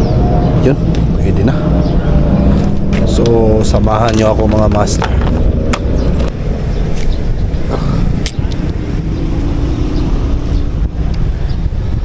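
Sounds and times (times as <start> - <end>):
low rumble of road traffic: 0.0 - 12.0
passing vehicle engine hum: 0.0 - 12.0.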